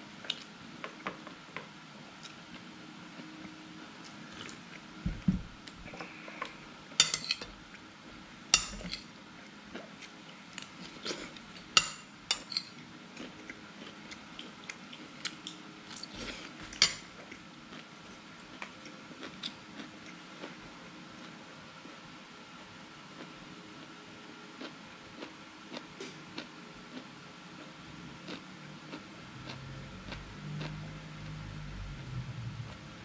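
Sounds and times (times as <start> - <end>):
dishes and utensils clinking: 7.0 - 7.5, 8.6 - 9.0.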